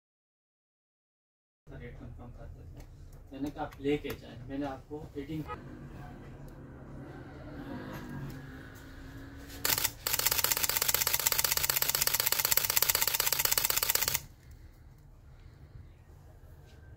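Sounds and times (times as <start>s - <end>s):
camera shutter clicking in a burst: 9.6s - 14.3s.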